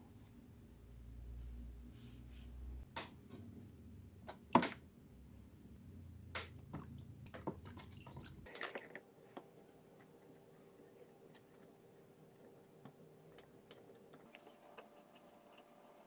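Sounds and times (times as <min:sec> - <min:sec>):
water splashing and sloshing: 0:06.5 - 0:08.9.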